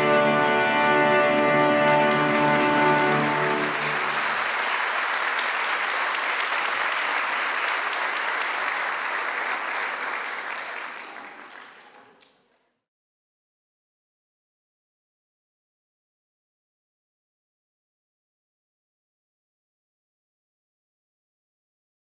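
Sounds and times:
audience applauding: 1.0 - 12.5.

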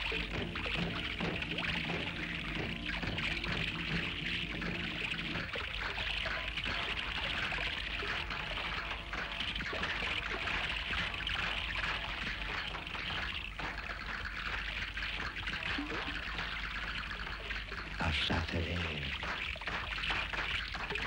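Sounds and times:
fountain water splashing: 0.0 - 21.0.

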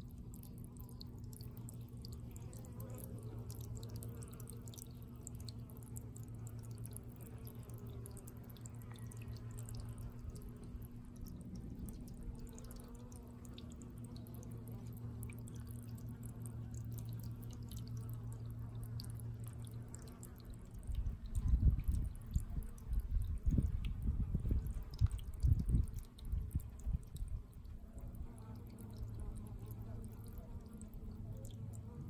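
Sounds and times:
low hum: 0.0 - 32.0
water dripping and trickling: 0.0 - 32.0
wind buffeting microphone: 21.0 - 27.4.

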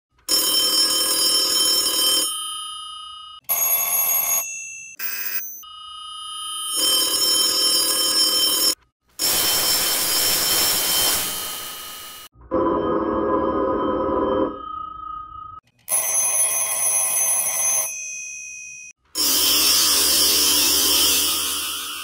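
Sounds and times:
rotary telephone bell ringing: 0.3 - 8.8, 15.9 - 22.0.

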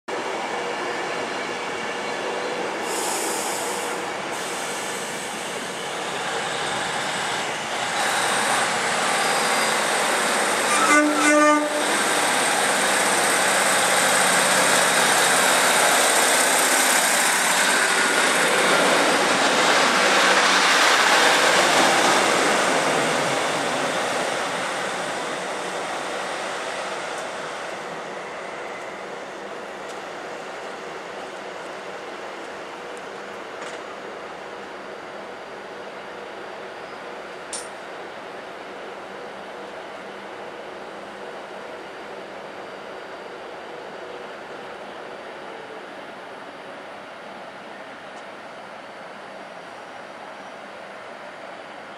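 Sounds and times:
diesel train pulling away: 0.2 - 51.9
train horn: 10.6 - 12.1.

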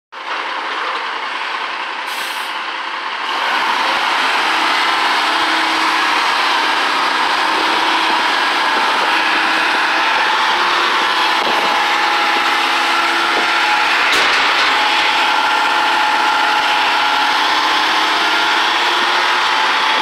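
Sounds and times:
garbage truck engine rushing: 0.2 - 20.0
air brake hiss: 2.1 - 2.6.

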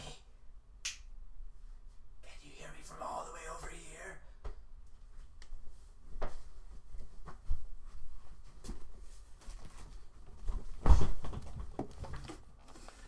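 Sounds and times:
footsteps in a small room: 4.3 - 13.0.

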